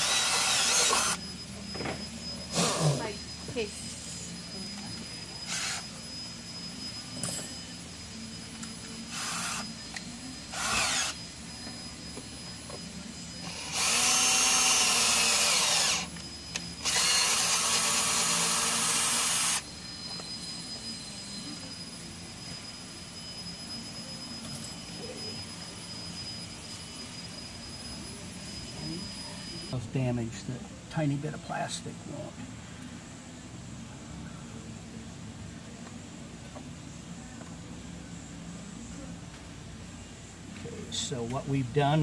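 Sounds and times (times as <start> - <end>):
cordless drill boring: 0.0 - 1.3, 5.3 - 6.1, 8.5 - 11.4, 13.4 - 21.0.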